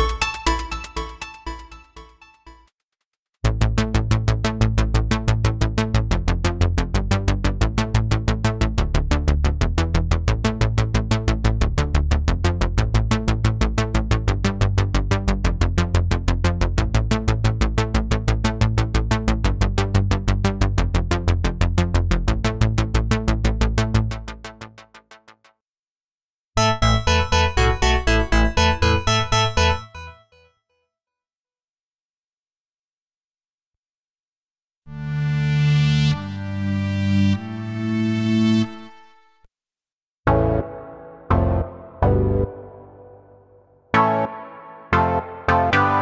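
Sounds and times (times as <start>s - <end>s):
synthesizer repeated short notes: 26.6s - 30.4s, 40.3s - 43.3s, 43.9s - 46.0s
heavy synth bass line: 40.3s - 43.2s.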